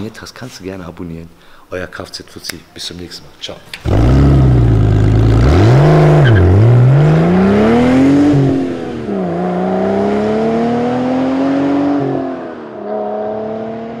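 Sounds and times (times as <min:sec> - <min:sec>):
car engine accelerating through gears: 0:03.8 - 0:14.0.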